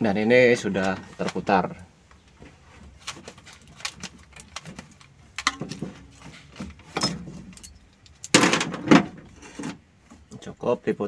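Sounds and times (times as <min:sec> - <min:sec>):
metallic clinks and rattles: 0:03.3 - 0:08.4.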